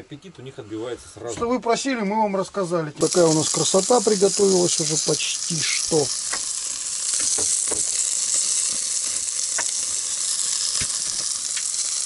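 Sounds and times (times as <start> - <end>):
food sizzling on a grill: 2.6 - 12.0.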